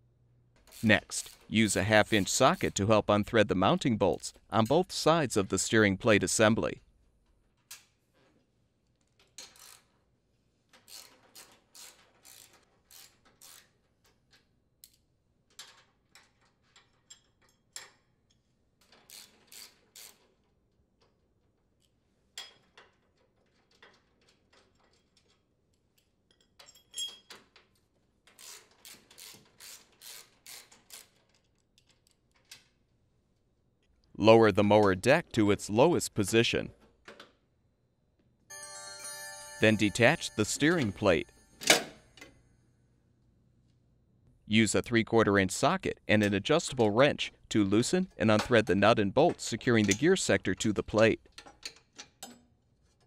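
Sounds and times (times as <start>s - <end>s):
ratchet wrench clicking: 9.4s - 9.9s, 10.8s - 13.7s, 19.1s - 20.2s, 28.4s - 31.2s.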